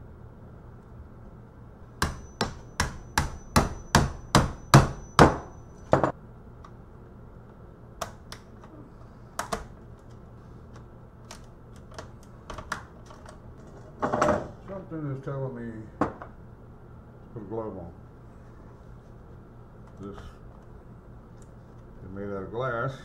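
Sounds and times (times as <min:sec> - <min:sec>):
sharp knocks: 0:02.0 - 0:06.2.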